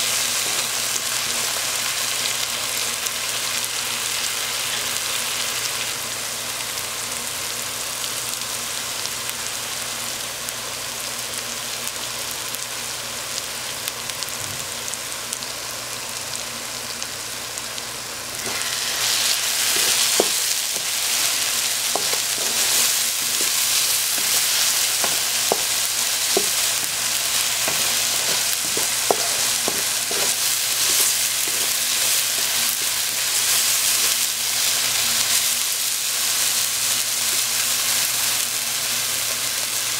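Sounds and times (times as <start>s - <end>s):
spice paste sizzling in a pan: 0.0s - 39.9s
wooden spatula stirring: 18.4s - 34.2s.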